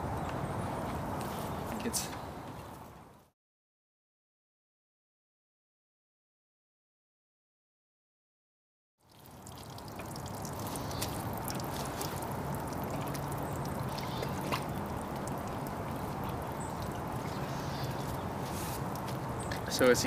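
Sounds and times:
water splashing and trickling: 0:09.0 - 0:20.0
outdoor hiss: 0:15.7 - 0:20.0.

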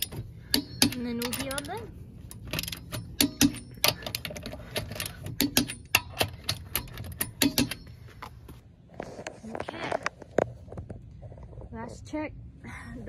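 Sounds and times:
socket ratchet clicking: 0:00.0 - 0:07.9.

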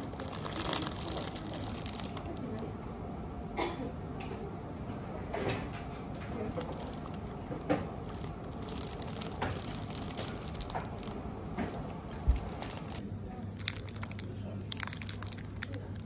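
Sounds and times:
plastic bag crinkling: 0:00.0 - 0:02.7, 0:06.4 - 0:16.0.

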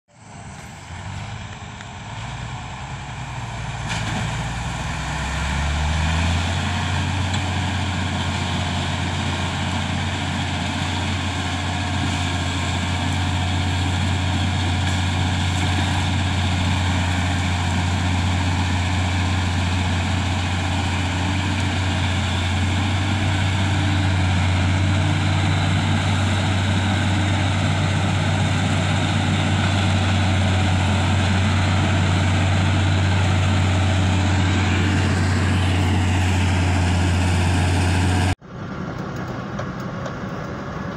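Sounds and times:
heavy diesel engines droning: 0:00.1 - 0:40.9.

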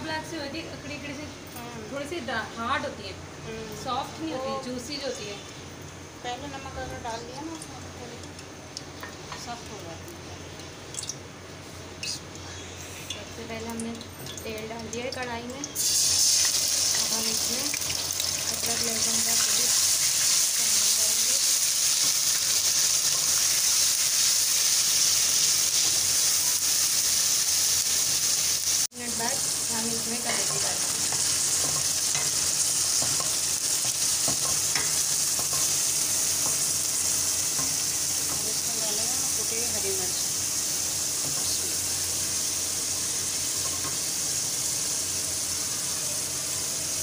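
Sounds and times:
paste sizzling in hot oil: 0:15.7 - 0:47.0.

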